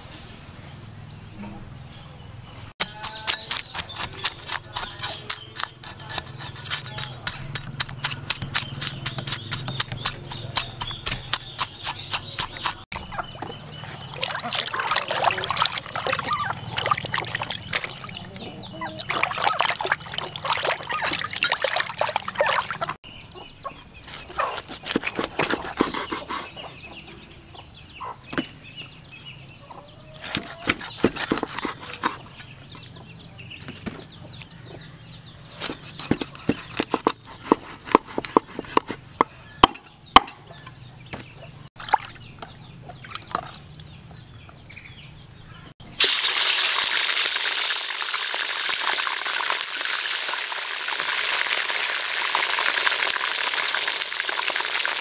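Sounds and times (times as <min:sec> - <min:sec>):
cleaver chopping on wooden board: 0:02.8 - 0:13.1, 0:24.5 - 0:26.4, 0:30.2 - 0:32.2, 0:35.6 - 0:39.0, 0:39.6 - 0:40.4
water splashing in a basin: 0:13.7 - 0:23.0, 0:41.8 - 0:42.3, 0:43.0 - 0:43.6
fish sizzling in hot oil: 0:46.0 - 0:55.0.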